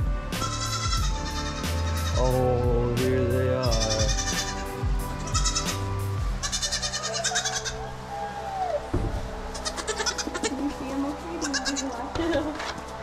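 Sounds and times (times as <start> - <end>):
goat kids bleating: 0.4 - 2.4, 3.6 - 7.8, 9.5 - 10.6, 11.4 - 12.6.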